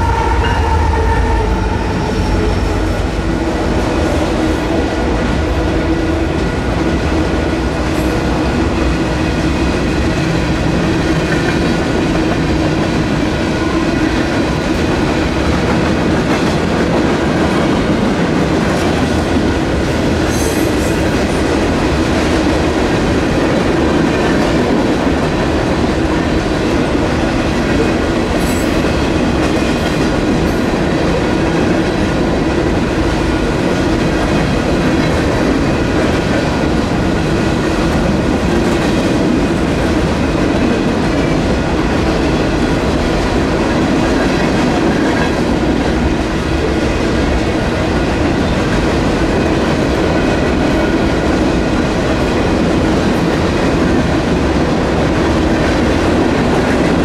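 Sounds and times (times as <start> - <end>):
crossing warning bells ringing: 0.0 - 5.6
train rumble: 0.0 - 57.0.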